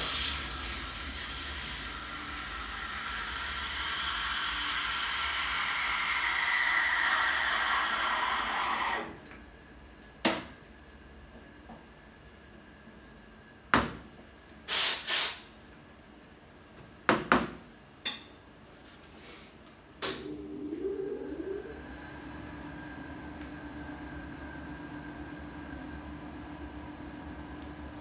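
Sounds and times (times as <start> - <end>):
steam wand hissing: 0.0 - 9.1, 14.7 - 15.4
short sharp steam hisses: 14.7 - 15.5.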